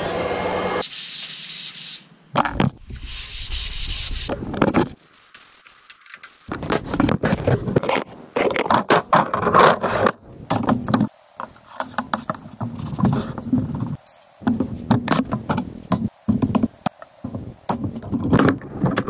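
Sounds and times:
wooden boards knocking and scraping: 2.4 - 2.8, 6.5 - 19.0.

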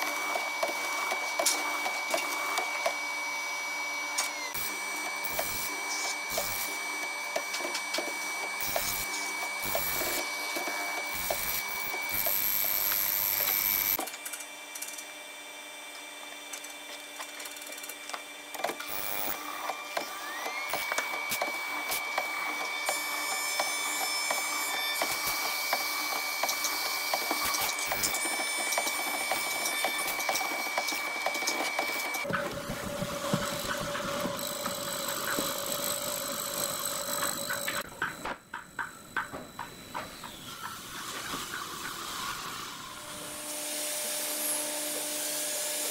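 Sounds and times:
cutters rasping wood: 0.0 - 14.0, 16.4 - 45.9
machine motors whining: 0.0 - 45.9.

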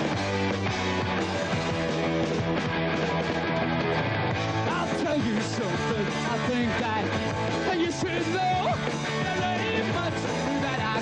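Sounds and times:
punk rock band playing: 0.0 - 11.0
man singing lead vocal: 4.6 - 11.0.

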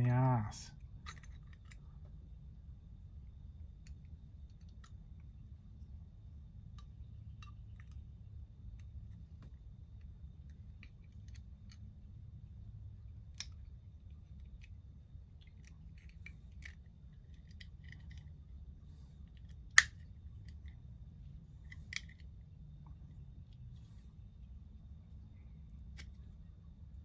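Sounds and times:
toy van parts clicking: 0.8 - 2.2, 3.8 - 5.3, 6.7 - 12.1, 13.1 - 18.4, 19.2 - 20.8, 21.6 - 22.4, 25.7 - 26.4.

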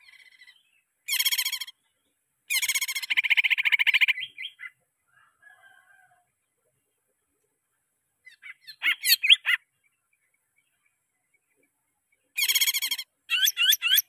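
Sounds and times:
bird singing: 0.0 - 5.3, 8.2 - 14.0.

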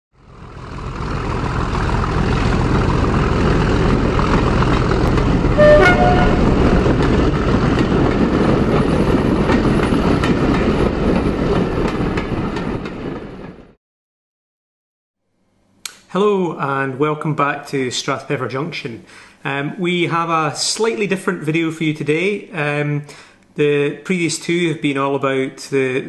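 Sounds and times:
diesel locomotive rumbling: 0.2 - 13.7
two-tone train horn: 5.5 - 7.2.

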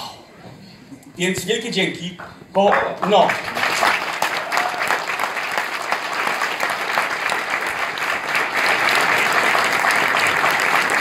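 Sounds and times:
audience applauding: 2.7 - 11.0.

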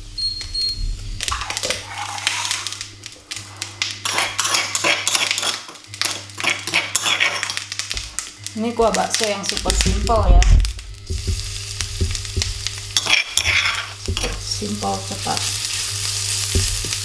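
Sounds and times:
metal spoon scraping stone mortar: 4.0 - 7.6, 12.9 - 14.5.

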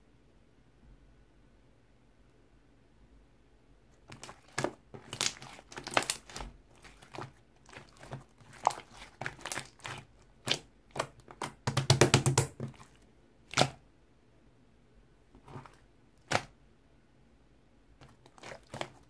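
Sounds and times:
wet slime squeezed by hand: 4.0 - 13.8, 15.4 - 16.5, 18.0 - 19.0.

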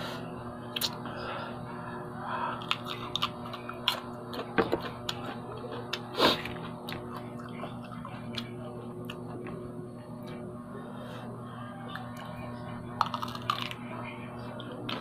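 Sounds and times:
biting and chewing raw fruit: 2.6 - 9.2, 13.0 - 13.8.

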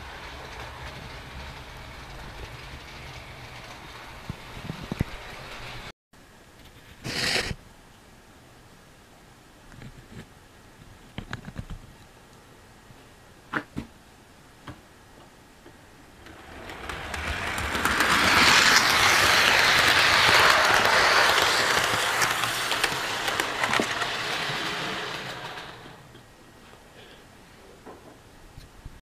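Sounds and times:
model train running on track: 0.0 - 5.9, 16.2 - 26.1.

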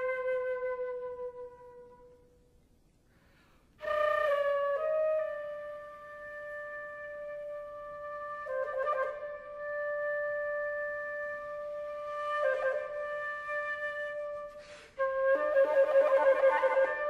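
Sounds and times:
solo flute: 0.0 - 17.0
quick breath: 3.0 - 3.8, 14.6 - 15.0.

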